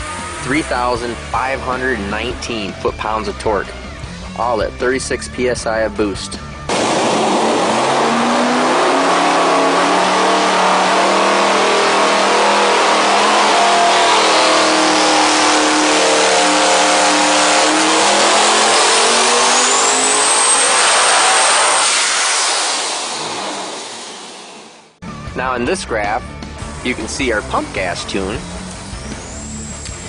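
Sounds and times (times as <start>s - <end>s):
engine revving under load: 0.0s - 5.4s, 6.3s - 25.0s, 26.3s - 30.0s
turbo whistle: 8.9s - 23.1s, 28.4s - 30.0s.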